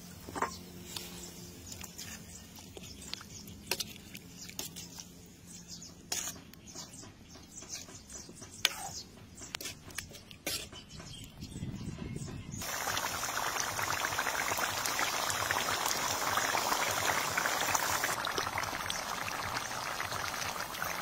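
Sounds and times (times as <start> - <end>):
curry sauce bubbling with soft pops: 12.6 - 21.0.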